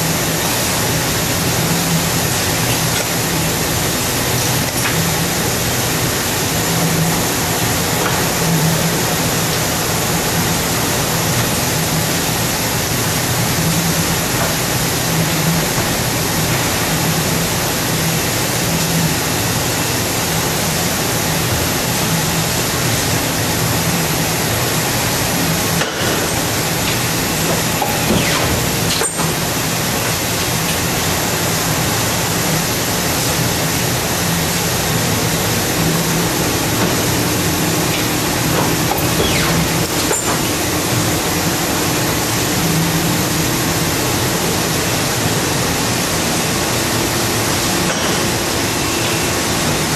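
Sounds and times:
paper cutting machine running: 0:24.2 - 0:49.9.

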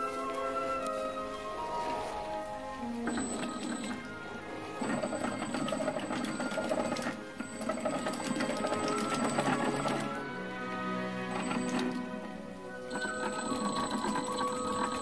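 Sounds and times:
background music: 0:00.0 - 0:15.0
rapid gear chatter: 0:04.6 - 0:10.2, 0:12.8 - 0:15.0
small electric motors running: 0:12.8 - 0:15.0.

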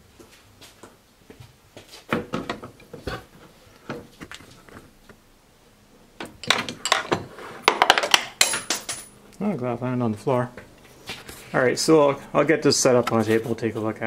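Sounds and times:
metal tools knocking and clunking: 0:06.2 - 0:09.2.

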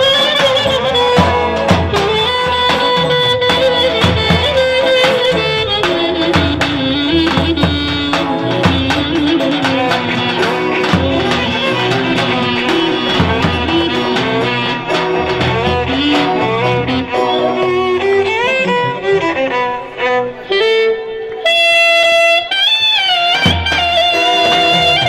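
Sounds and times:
steady drum beat: 0:00.0 - 0:18.3, 0:23.3 - 0:25.0
clarinet playing fast melody: 0:00.0 - 0:25.0.

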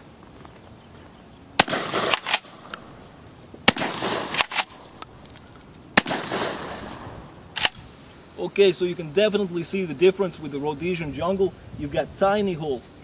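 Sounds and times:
shotgun blasts: 0:01.6 - 0:02.9, 0:03.6 - 0:05.1, 0:06.0 - 0:07.8.

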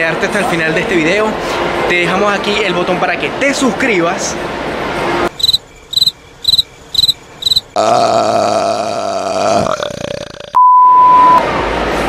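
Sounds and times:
steady pure beep tone: 0:05.4 - 0:07.7, 0:10.6 - 0:11.4.

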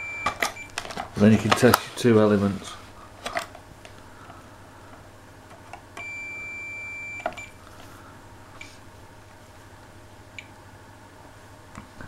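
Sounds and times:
multimeter high-pitched beep: 0:00.0 - 0:00.7, 0:06.0 - 0:07.6.

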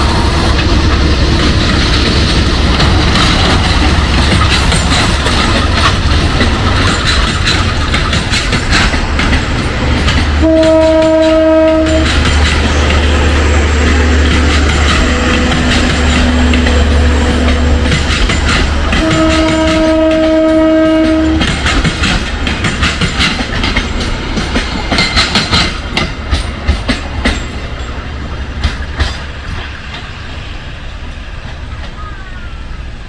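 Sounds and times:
train rumble: 0:00.0 - 0:33.0
wheels clacking over rail joints: 0:00.0 - 0:33.0
train horn blast: 0:10.3 - 0:12.2, 0:13.0 - 0:17.9, 0:18.9 - 0:21.6.

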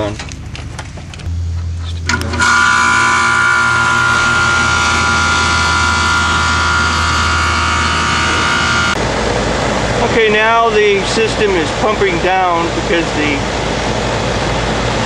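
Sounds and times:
compressor running with high whine: 0:00.0 - 0:15.0
contactor click: 0:02.0 - 0:02.7.

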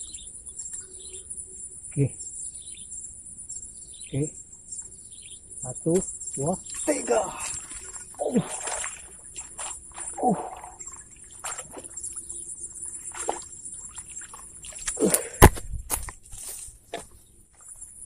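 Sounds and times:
insects chirring: 0:00.0 - 0:18.0.

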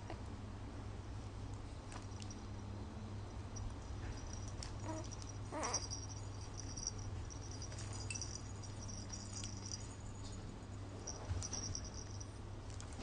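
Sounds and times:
plush toy rattling and rustling: 0:03.6 - 0:13.0
toy squeak: 0:04.8 - 0:06.2.

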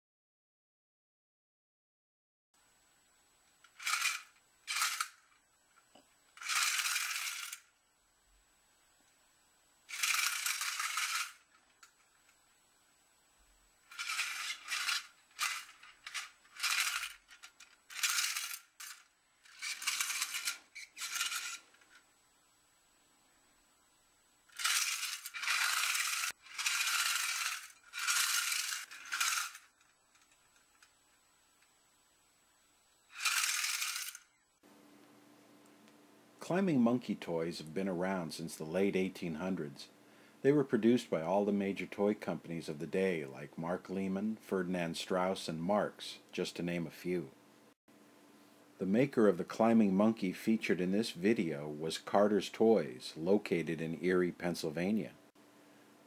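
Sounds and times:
tin toy mechanism rattling: 0:03.6 - 0:05.4, 0:06.4 - 0:07.7, 0:09.9 - 0:12.0, 0:13.9 - 0:22.0, 0:24.5 - 0:30.9, 0:33.1 - 0:34.3.

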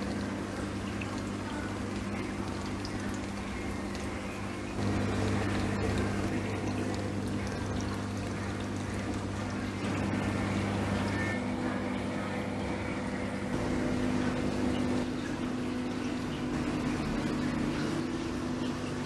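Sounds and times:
aquarium pumps humming: 0:00.0 - 0:19.0
splashing water: 0:00.0 - 0:19.0.

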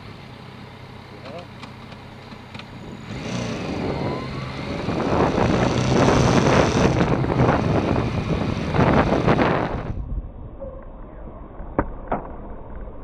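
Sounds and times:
motorbike engine: 0:00.0 - 0:10.0
wind buffeting microphone: 0:03.0 - 0:10.6.

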